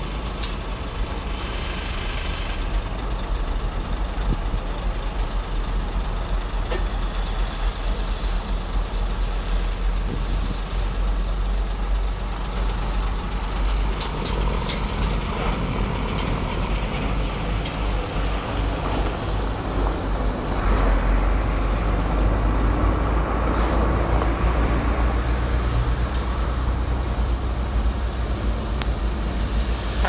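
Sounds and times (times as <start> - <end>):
diesel truck engine running: 0.0 - 30.0
sharp clicks and clatters: 13.6 - 18.0.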